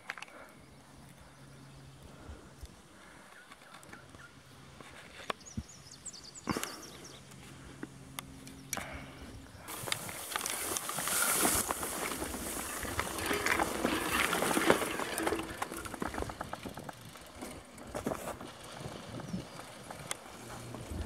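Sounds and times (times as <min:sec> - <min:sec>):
bike clicks and rattles: 0:00.0 - 0:01.2, 0:02.6 - 0:05.5, 0:09.7 - 0:21.0
grass swishing against bike: 0:09.7 - 0:21.0.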